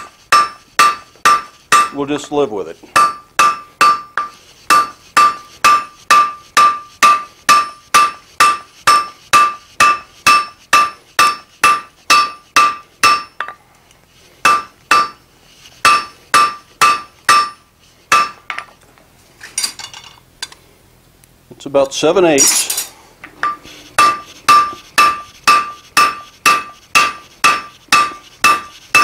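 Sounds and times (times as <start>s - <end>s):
hammer striking metal on anvil: 0.0s - 2.3s, 2.9s - 13.6s, 14.4s - 15.2s, 15.8s - 18.6s, 22.4s - 29.0s.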